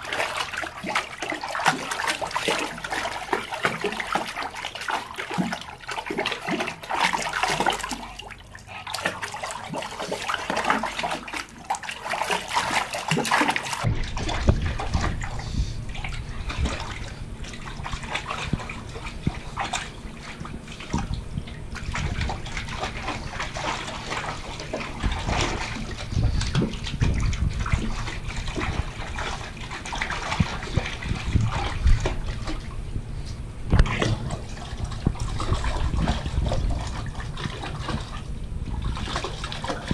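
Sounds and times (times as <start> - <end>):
dogs splashing in water: 0.0 - 32.8, 33.7 - 39.9
low rumble: 13.8 - 39.9.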